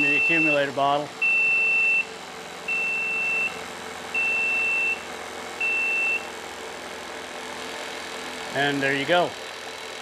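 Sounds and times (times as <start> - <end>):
alarm buzzer beeping: 0.0 - 0.6, 1.2 - 2.1, 2.7 - 6.3.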